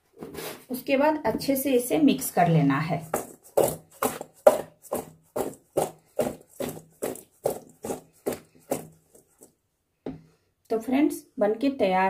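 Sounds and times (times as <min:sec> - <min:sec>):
food tossed in a steel bowl: 0:02.9 - 0:09.5.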